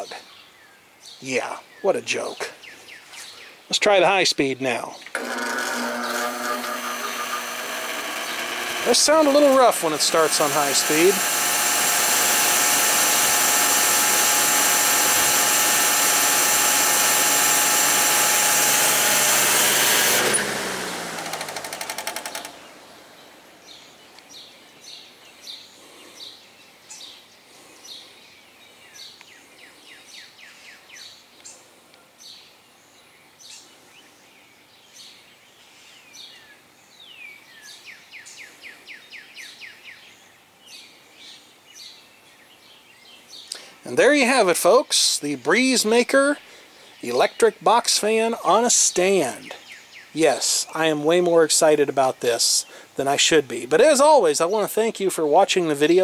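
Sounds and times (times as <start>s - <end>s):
birds chirping faintly: 0.0s - 5.2s, 21.8s - 56.0s
fan blades ticking: 5.1s - 22.8s
electric fan motor hum: 5.1s - 23.7s.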